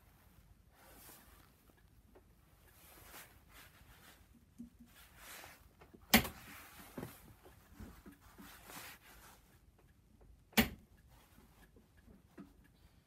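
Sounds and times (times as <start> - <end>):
clothing rustling: 0.0 - 9.7.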